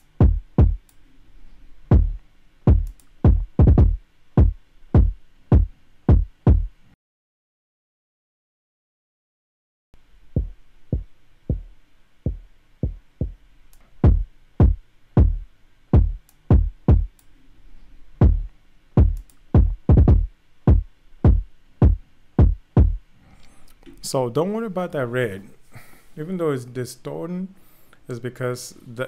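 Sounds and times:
kick drum pattern: 0.0 - 0.8, 1.9 - 6.8, 10.4 - 13.4, 14.0 - 17.2, 18.2 - 23.0.

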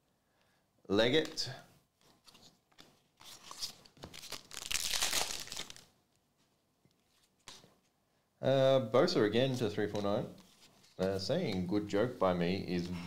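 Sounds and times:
cards crinkling scrape: 2.0 - 5.9
trading cards rustling: 2.0 - 5.9.

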